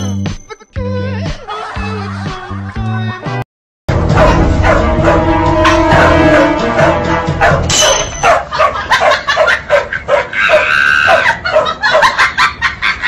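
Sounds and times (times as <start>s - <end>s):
dogs barking and yapping: 4.1s - 12.7s
dog drawn-out cry: 4.2s - 12.2s.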